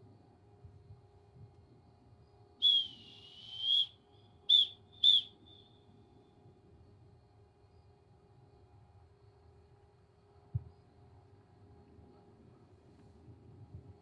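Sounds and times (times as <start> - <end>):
whistle blasts: 2.6 - 5.7.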